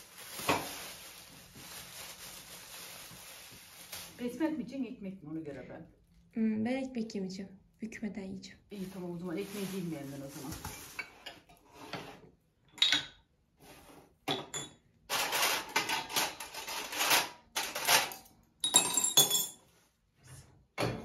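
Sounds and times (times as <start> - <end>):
dishes and cutlery clinking: 14.2 - 19.7.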